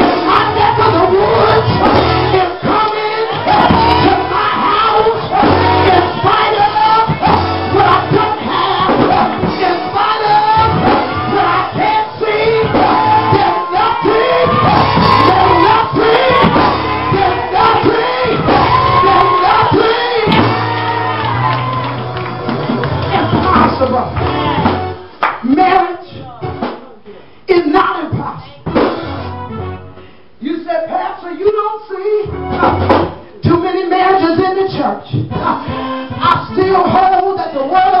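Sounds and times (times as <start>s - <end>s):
woman singing gospel: 0.0s - 21.5s, 33.4s - 38.0s
instrumental accompaniment: 0.0s - 27.1s, 28.4s - 30.4s, 32.1s - 34.4s, 35.1s - 38.0s.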